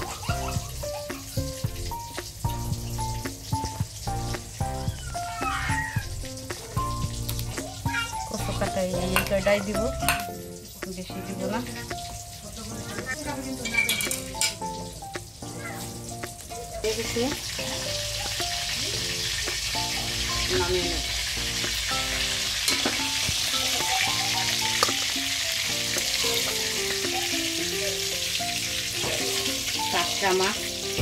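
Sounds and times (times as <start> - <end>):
melodic tune: 0.0 - 18.7
fish sizzling in hot oil: 0.0 - 31.0.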